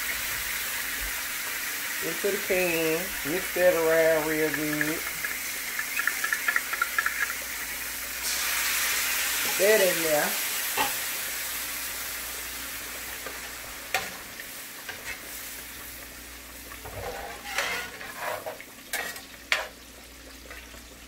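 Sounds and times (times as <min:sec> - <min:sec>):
liquid sizzling in a skillet: 0:00.0 - 0:21.0
metal spatula scraping pan: 0:16.8 - 0:19.7.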